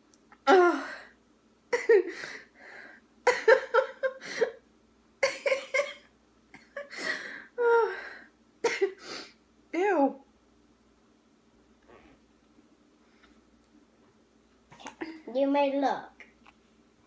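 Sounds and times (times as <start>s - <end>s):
woman laughing uncontrollably: 3.3s - 4.5s, 5.2s - 6.0s.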